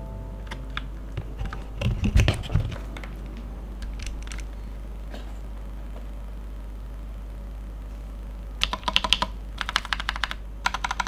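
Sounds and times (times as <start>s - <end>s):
mechanical keyboard key clacks: 8.6s - 11.0s.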